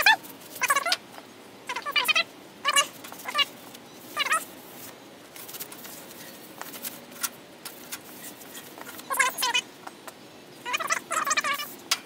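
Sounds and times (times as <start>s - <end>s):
scratchy rubbing: 7.7s - 9.4s
cloth squeaking on saw blade: 8.1s - 9.6s.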